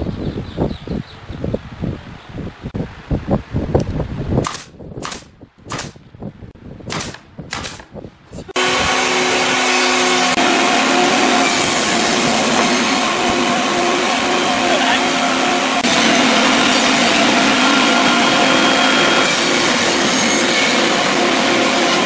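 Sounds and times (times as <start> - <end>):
nail gun firing: 4.4 - 6.0, 6.9 - 8.0
table saw running: 8.5 - 22.0.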